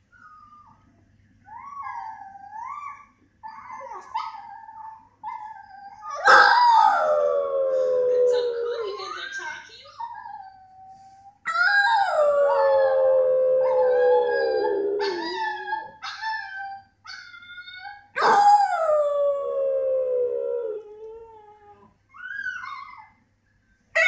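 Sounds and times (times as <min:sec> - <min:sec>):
dog yelping: 0:06.1 - 0:07.1
dog howling: 0:06.1 - 0:09.1, 0:11.5 - 0:16.0, 0:18.2 - 0:21.9.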